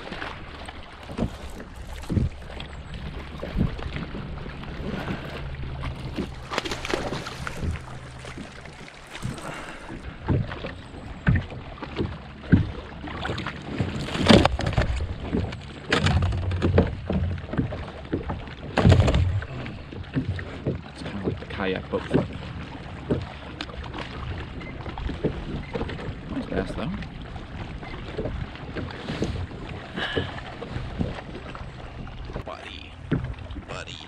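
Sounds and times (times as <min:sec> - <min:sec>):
fish splashing: 0:00.0 - 0:20.8
steady low hum: 0:00.8 - 0:13.0
knocks on kayak: 0:18.8 - 0:19.6.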